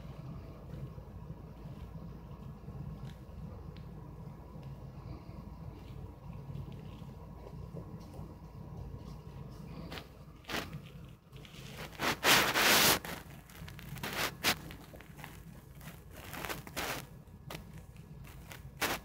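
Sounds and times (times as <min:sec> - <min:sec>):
plastic wrapper crinkling: 0:09.8 - 0:19.0.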